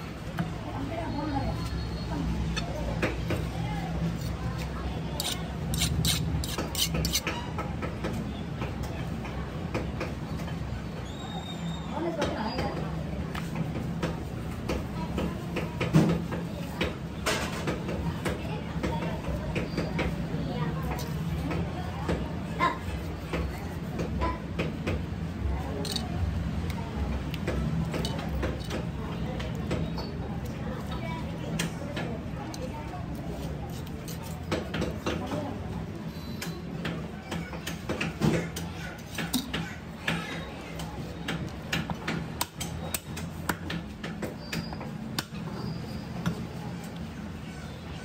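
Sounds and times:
knife scraping and cutting: 4.0 - 7.6, 33.1 - 34.9.

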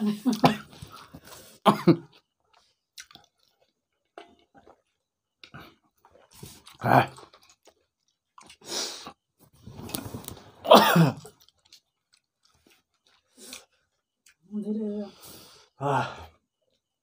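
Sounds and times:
open-mouthed chewing and smacking: 0.3 - 10.5, 11.1 - 14.5
hissy mouth noise: 8.6 - 9.1.

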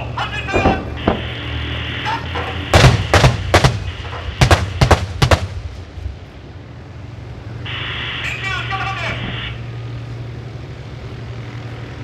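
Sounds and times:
low steady rumble: 0.0 - 12.0
gunshots with echo: 2.8 - 5.6.

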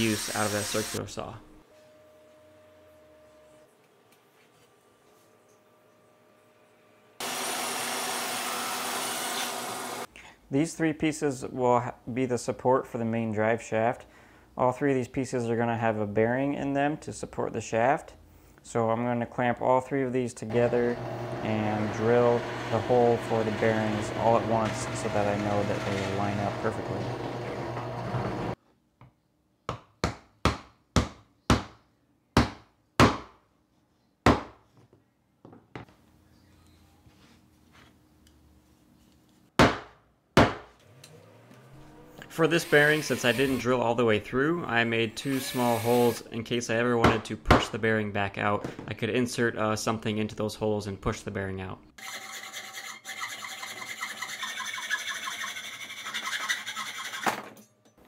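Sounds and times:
hacksaw sawing: 7.2 - 10.1, 20.5 - 28.6, 42.2 - 43.8, 45.0 - 46.3, 52.0 - 57.4
hammer striking wood block: 39.6 - 40.7.

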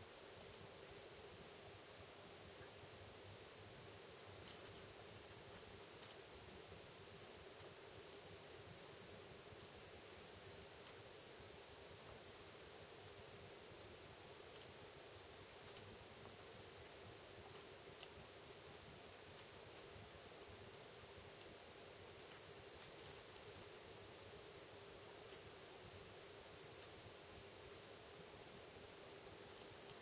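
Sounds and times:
faint steady hum: 0.0 - 30.0.

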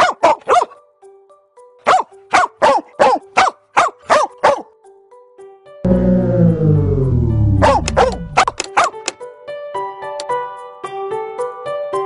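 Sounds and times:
dog barking: 0.0 - 0.8, 1.8 - 4.7, 7.6 - 9.0
soft background music: 0.0 - 8.5.

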